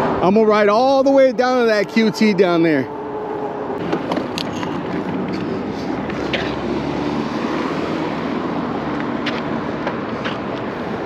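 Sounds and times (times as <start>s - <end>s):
street traffic rush: 0.0s - 11.0s
low hum: 1.6s - 6.6s.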